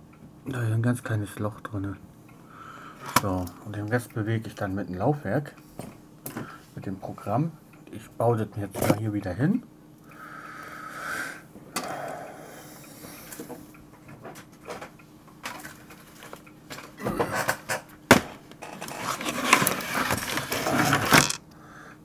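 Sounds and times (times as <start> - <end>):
floppy drive clicks and scrapes: 18.6 - 21.4.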